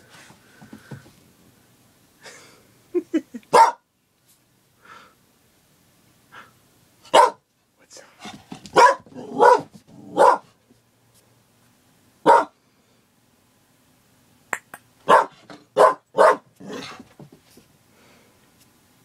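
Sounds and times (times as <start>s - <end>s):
dog barking: 3.5s - 3.8s, 7.1s - 7.4s, 8.7s - 10.6s, 12.2s - 12.6s, 15.0s - 16.9s.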